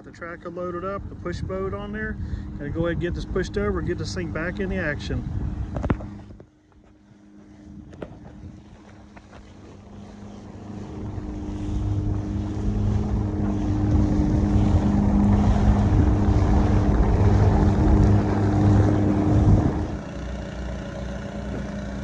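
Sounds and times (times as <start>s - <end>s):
wind on microphone: 0.0s - 20.2s
boat engine running: 0.0s - 22.0s
water wash: 8.2s - 22.0s.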